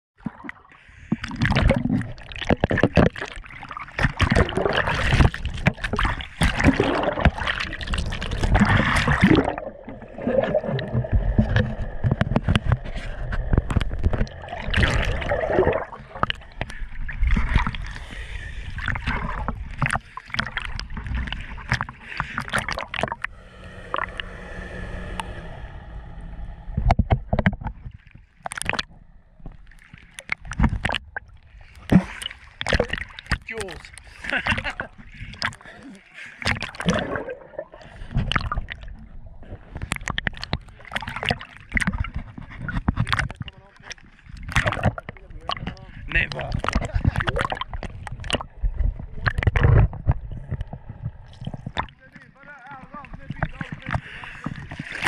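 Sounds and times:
sea water splashing: 0:00.2 - 0:55.0
muffled underwater gurgling: 0:00.5 - 0:55.0
faint steady hum: 0:21.3 - 0:28.3.

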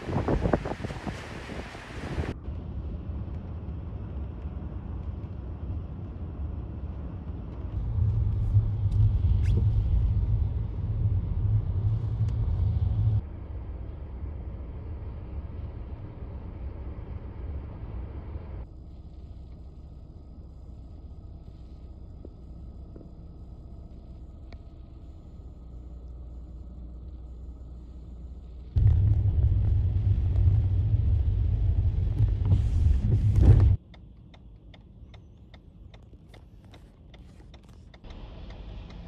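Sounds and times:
wind rumbling on microphone: 0:00.0 - 0:13.2, 0:28.8 - 0:33.8.

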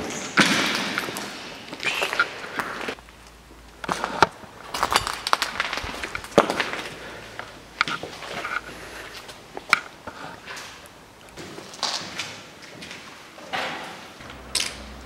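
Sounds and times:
footsteps crunching over debris: 0:00.0 - 0:09.8.

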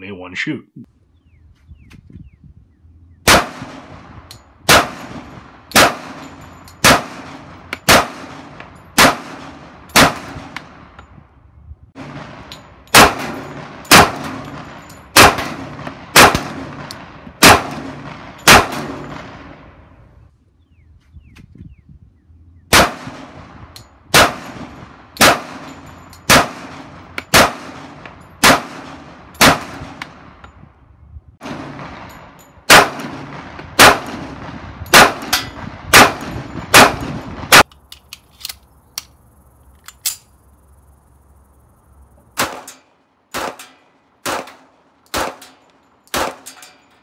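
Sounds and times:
pistol shots: 0:03.2 - 0:10.9, 0:12.0 - 0:19.6, 0:22.7 - 0:30.4, 0:31.4 - 0:37.7, 0:42.4 - 0:46.8
light metal clinks: 0:06.2 - 0:06.8, 0:14.4 - 0:15.2, 0:25.6 - 0:26.3, 0:45.4 - 0:47.0.

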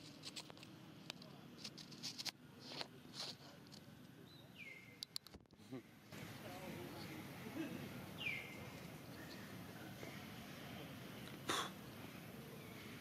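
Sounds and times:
soft rustles and ticks: 0:00.0 - 0:04.2.

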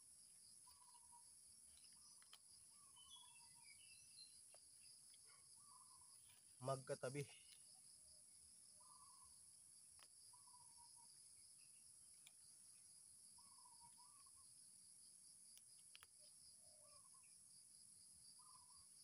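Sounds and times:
high-pitched insect chorus: 0:00.0 - 0:19.0
faint ticks: 0:01.6 - 0:02.6, 0:09.9 - 0:10.3, 0:12.0 - 0:12.6, 0:15.5 - 0:16.4.

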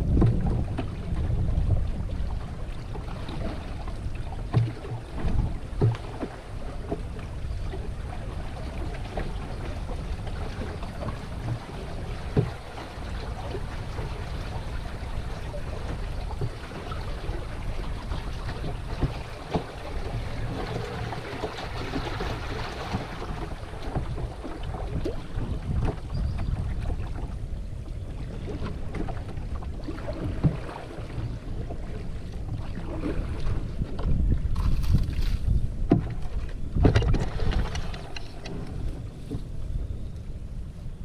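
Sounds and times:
water lapping against canoe hull: 0:00.0 - 0:41.0
wind rumble on microphone: 0:00.0 - 0:41.0.

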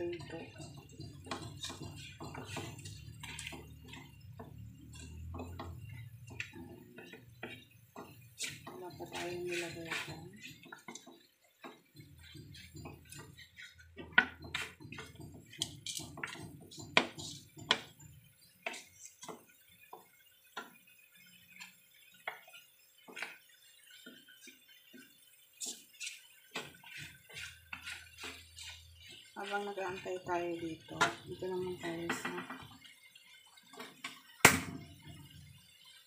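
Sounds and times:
wooden spatula knocking frying pan: 0:00.0 - 0:20.8, 0:21.6 - 0:23.4, 0:24.0 - 0:33.0.

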